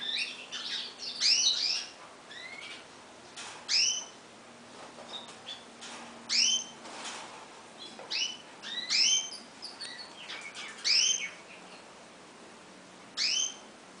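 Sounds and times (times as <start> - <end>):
bird chirping: 0.0 - 2.9, 3.7 - 4.2, 5.1 - 6.8, 7.8 - 12.0, 13.0 - 13.7.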